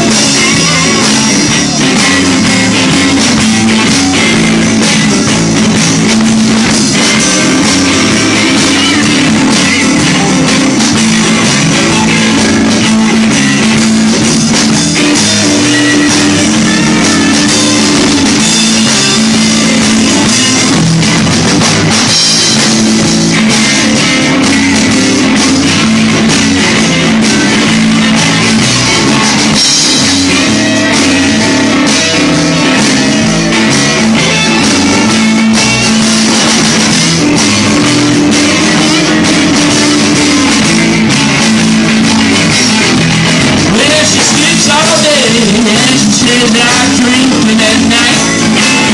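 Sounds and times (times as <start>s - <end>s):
bass guitar: 0.0s - 48.9s
drum kit: 0.0s - 48.9s
electric guitars: 0.0s - 48.9s.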